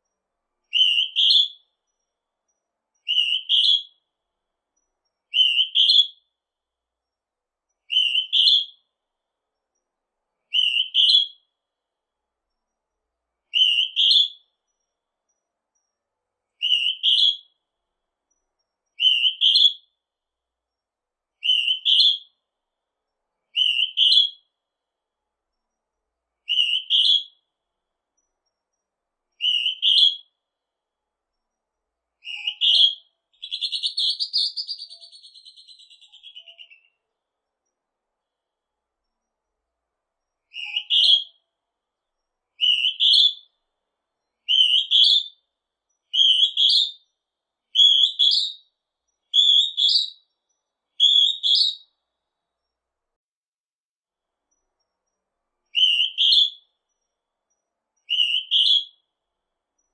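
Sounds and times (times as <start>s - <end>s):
cuckoo calling: 32.2s - 37.0s, 40.5s - 41.4s.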